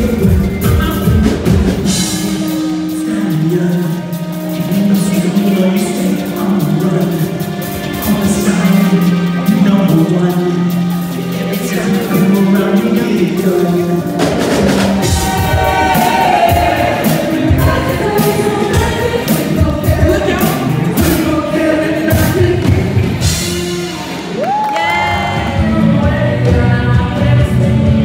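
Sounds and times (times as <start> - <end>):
live stage music: 0.0 - 28.0
singers: 0.0 - 28.0.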